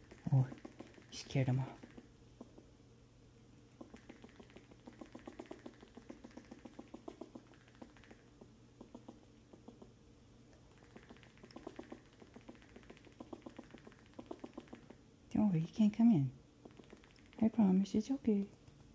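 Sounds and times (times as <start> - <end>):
squirrel clicking barks: 0.0 - 2.6, 3.8 - 9.9, 10.7 - 15.0, 16.6 - 17.5.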